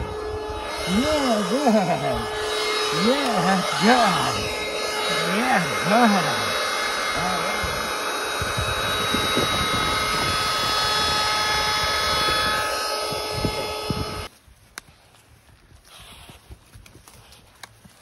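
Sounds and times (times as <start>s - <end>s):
machine motor drone with whine: 0.0s - 14.3s
voice-like calls: 0.6s - 7.9s.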